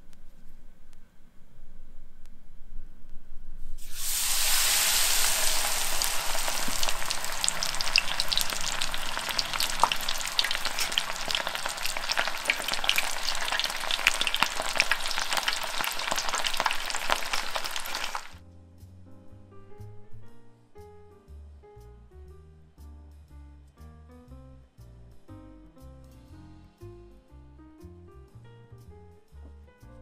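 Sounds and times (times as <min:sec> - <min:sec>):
shrimp deep-frying in oil: 0:03.8 - 0:18.4.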